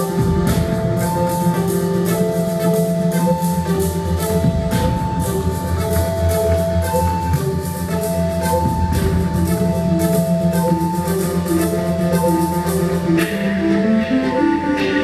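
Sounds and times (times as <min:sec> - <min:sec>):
low bass drone: 0:00.0 - 0:14.2
alternating synth tones: 0:00.0 - 0:15.0
faint ticking percussion: 0:00.0 - 0:15.0.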